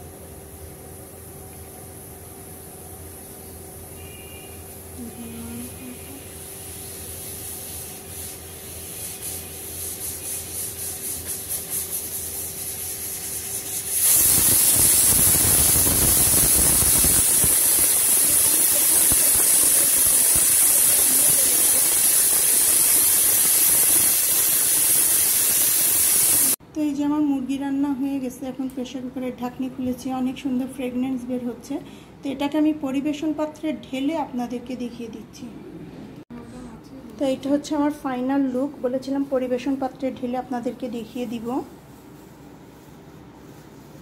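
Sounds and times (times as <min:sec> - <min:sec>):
pressure cooker whistle: 0:04.0 - 0:04.6, 0:14.0 - 0:26.6
pressure cooker hissing steam: 0:06.1 - 0:26.6.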